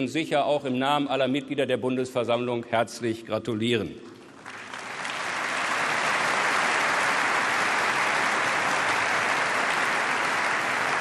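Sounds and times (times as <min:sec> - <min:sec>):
large audience applauding: 0:04.3 - 0:11.0.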